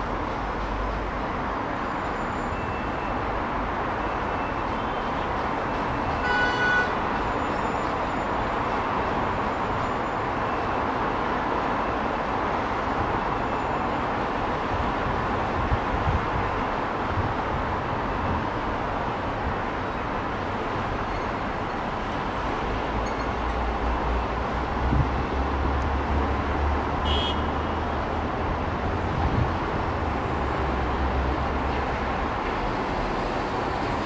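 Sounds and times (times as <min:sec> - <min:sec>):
city traffic noise: 0:00.0 - 0:34.0
car horn blast: 0:06.2 - 0:07.0, 0:27.0 - 0:27.5.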